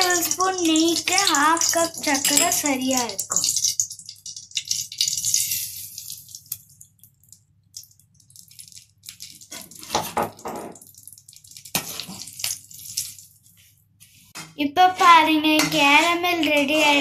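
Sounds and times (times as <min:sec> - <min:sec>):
sugar pouring into metal pan: 0:00.0 - 0:06.9
metal ladle scraping a pan: 0:05.0 - 0:06.2.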